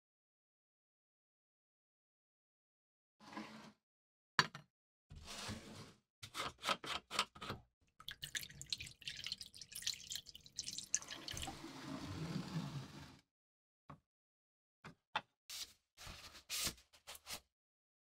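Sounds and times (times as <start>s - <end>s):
liquid pouring and splashing: 8.0s - 11.9s.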